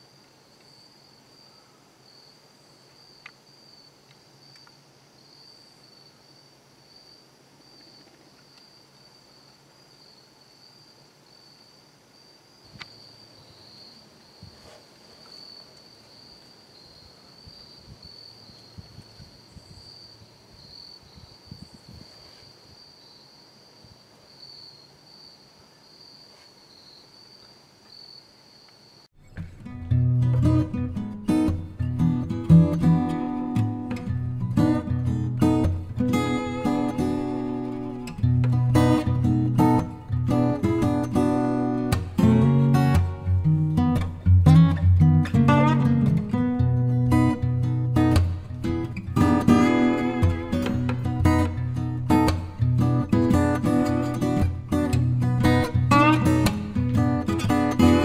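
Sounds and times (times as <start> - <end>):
insects trilling: 0.0 - 29.1, 30.4 - 58.0.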